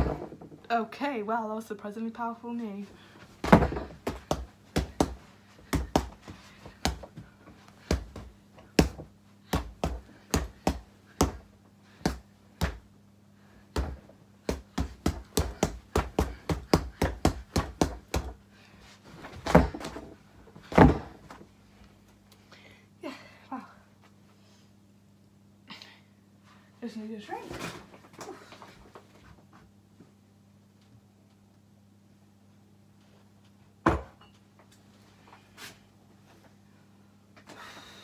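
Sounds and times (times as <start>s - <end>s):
fists punching a punch bag: 3.4s - 6.2s, 7.9s - 12.9s, 13.7s - 18.4s.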